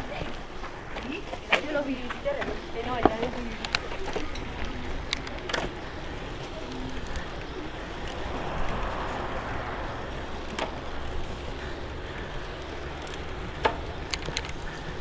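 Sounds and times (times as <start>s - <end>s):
tyres rolling on pavement: 0.0s - 15.0s
bicycle clicks and rattles: 0.5s - 8.8s, 10.4s - 15.0s
wind on microphone: 7.2s - 12.6s.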